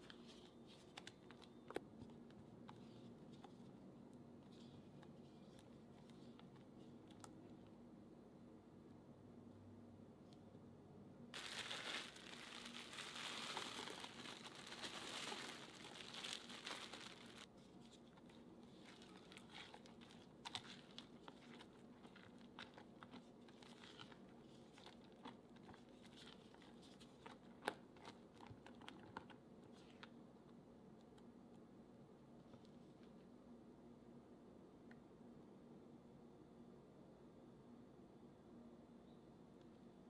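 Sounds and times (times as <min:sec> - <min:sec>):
cookie crumbs crunching: 0:11.4 - 0:17.5, 0:18.1 - 0:28.2
spatula folding batter: 0:16.8 - 0:29.9.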